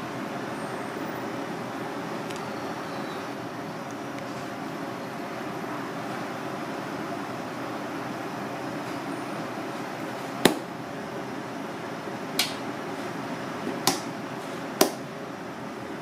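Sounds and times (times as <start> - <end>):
wet slaps on cutting board: 10.4 - 10.6, 13.8 - 14.1, 14.8 - 15.0.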